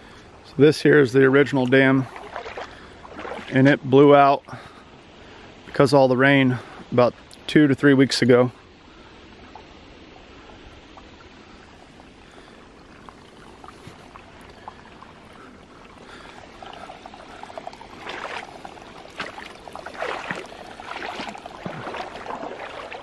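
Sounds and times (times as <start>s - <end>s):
water trickling: 0.8s - 4.8s, 8.9s - 23.0s.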